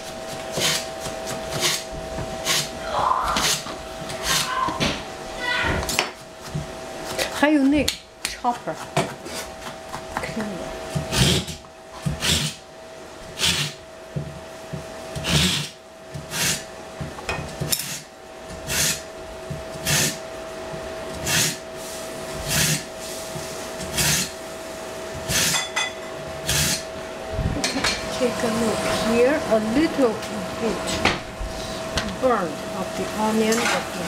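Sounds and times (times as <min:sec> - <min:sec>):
kitchen utensil scraping: 0:33.4 - 0:34.0.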